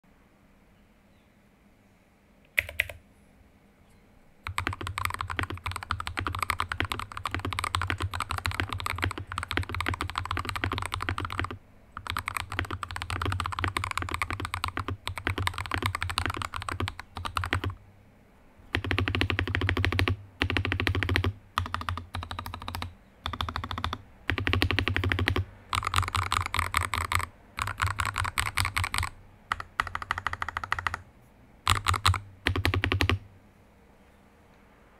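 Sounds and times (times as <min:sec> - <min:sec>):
mechanical keyboard typing: 0:02.5 - 0:03.0, 0:04.4 - 0:17.8, 0:18.7 - 0:31.0, 0:31.6 - 0:33.2.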